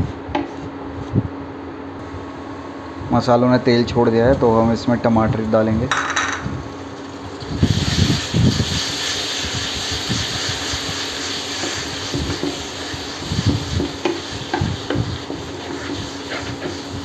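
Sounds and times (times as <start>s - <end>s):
tomatoes sizzling in oil: 6.7s - 17.0s
spatula scraping a pan: 8.8s - 17.0s.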